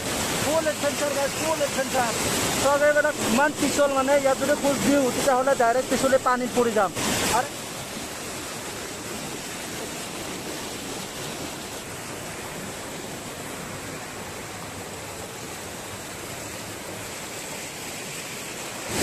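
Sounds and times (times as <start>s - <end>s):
stream rushing over boulders: 0.0s - 19.0s.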